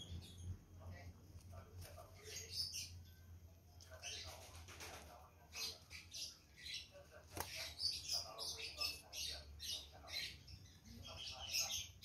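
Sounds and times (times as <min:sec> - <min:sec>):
chicks squeaking: 0:03.9 - 0:12.0
fluttering wings: 0:04.3 - 0:05.2.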